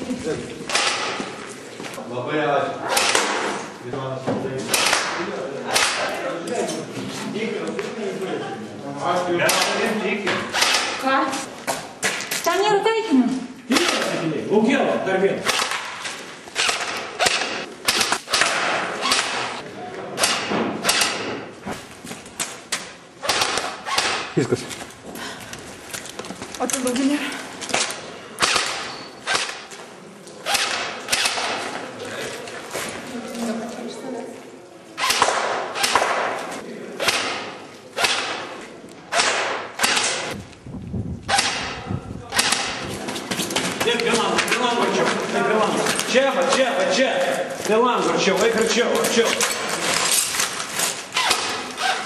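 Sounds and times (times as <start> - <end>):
airsoft rifles firing: 0.7 - 1.4, 4.7 - 6.3, 9.4 - 11.2, 15.4 - 19.6, 20.2 - 21.4, 23.2 - 24.4, 27.8 - 29.8, 30.4 - 31.8, 35.0 - 40.4, 41.3 - 42.9.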